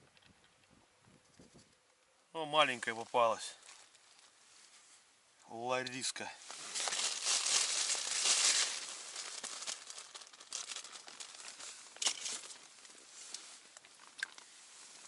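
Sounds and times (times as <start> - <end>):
plastic bag rustling: 6.4 - 15.0.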